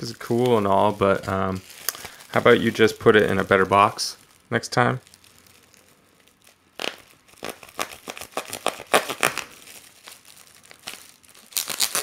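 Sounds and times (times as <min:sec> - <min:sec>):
packing tape tearing: 0:00.0 - 0:03.6, 0:06.4 - 0:12.0
plastic wrapping crinkling: 0:00.0 - 0:12.0.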